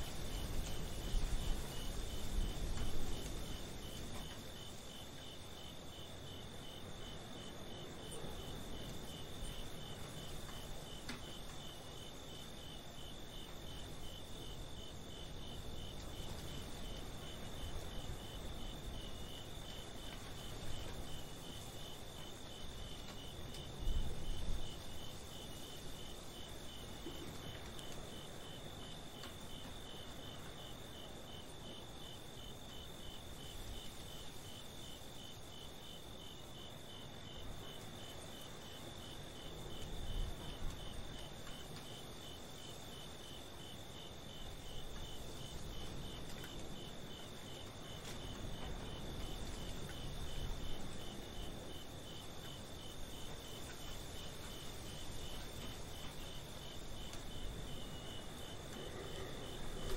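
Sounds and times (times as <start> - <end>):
crickets chirping: 0.0 - 59.9
low background noise: 0.0 - 59.9.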